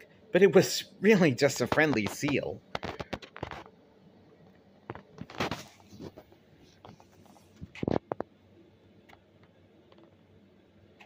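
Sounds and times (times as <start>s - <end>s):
paper rustling: 5.0s - 8.1s.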